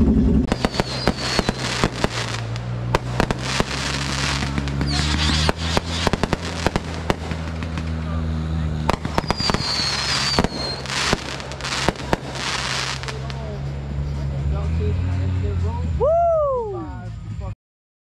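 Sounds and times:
low engine hum: 0.0 - 17.6
firework whistles: 0.5 - 8.0, 8.9 - 13.2
firecrackers cracking and popping: 0.5 - 13.6.

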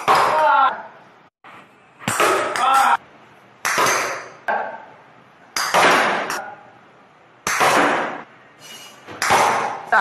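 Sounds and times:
ball knocking off hard surfaces: 0.0 - 0.4, 2.0 - 2.8, 3.6 - 4.4, 5.6 - 6.4, 7.4 - 8.2, 9.1 - 9.9
toy cricket bat striking ball: 2.0 - 2.8, 3.6 - 4.4, 5.6 - 6.4, 7.4 - 8.2, 9.1 - 9.8.

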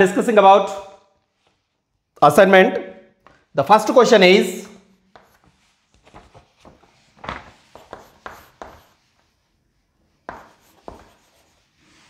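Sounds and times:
chalk writing on a chalkboard: 5.0 - 12.0.

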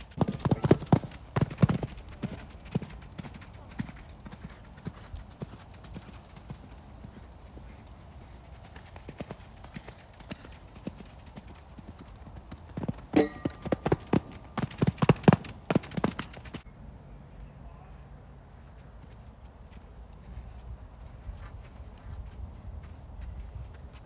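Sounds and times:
horse hoofbeats on sand: 0.0 - 16.6.

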